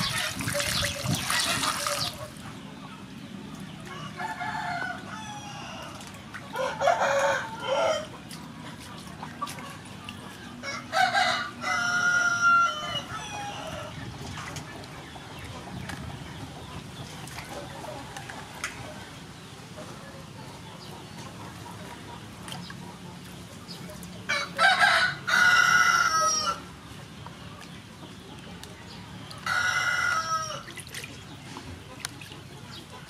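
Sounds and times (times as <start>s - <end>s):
water splashing into steel bowl: 0.0s - 2.3s
rooster crowing: 3.9s - 5.9s, 6.6s - 8.1s, 10.6s - 13.8s, 24.3s - 26.6s.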